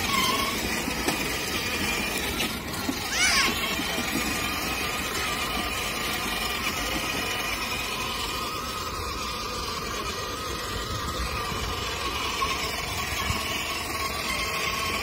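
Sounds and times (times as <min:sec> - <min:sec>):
toy car electric motor whine: 0:00.0 - 0:15.0.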